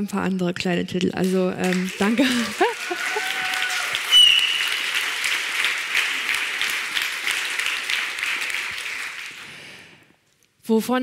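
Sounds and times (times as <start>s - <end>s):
audience applauding: 1.2s - 10.0s
high whistle: 4.0s - 5.0s.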